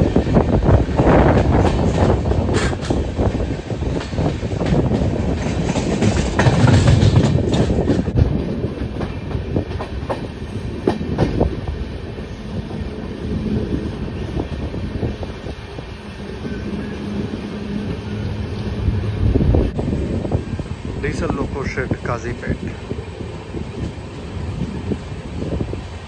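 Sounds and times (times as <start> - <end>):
train rolling rumble: 0.0 - 26.0
train wheels clacking over rail joints: 1.0 - 11.6.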